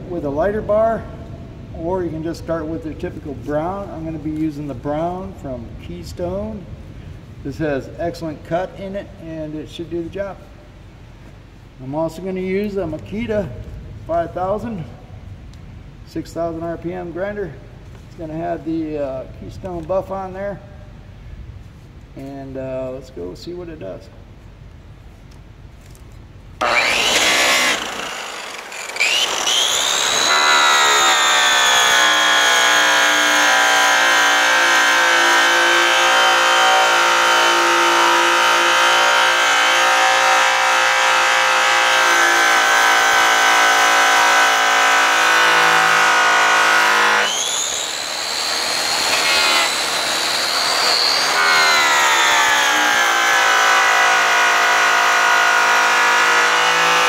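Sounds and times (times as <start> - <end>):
polisher motor whining: 26.6 - 57.0.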